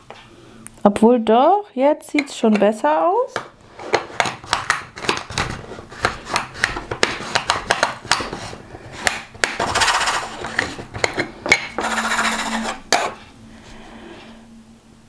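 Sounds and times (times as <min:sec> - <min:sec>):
resin beads rattling in a mill: 0:09.6 - 0:10.4.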